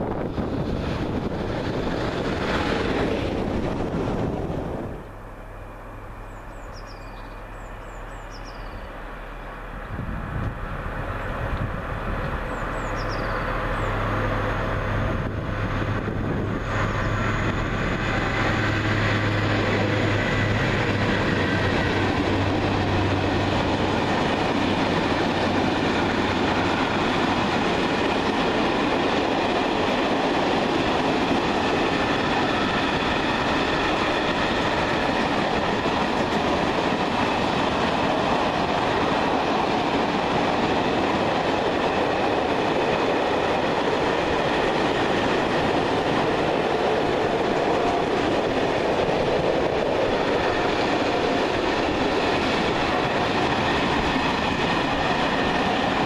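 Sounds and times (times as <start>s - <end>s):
electric locomotive passing: 0.0s - 56.0s
train wheels clattering on rails: 11.4s - 56.0s.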